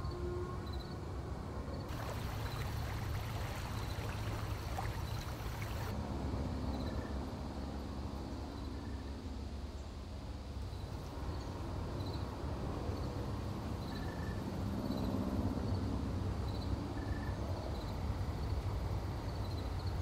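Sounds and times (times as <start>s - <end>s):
creek trickling over rocks: 1.9s - 6.0s.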